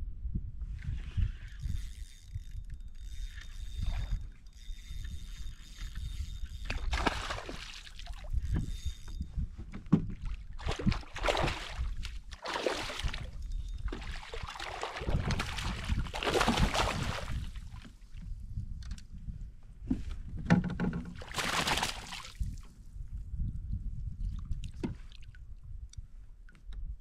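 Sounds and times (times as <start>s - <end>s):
paddle splashing through water: 6.8s - 8.2s, 10.6s - 17.6s, 21.2s - 22.3s.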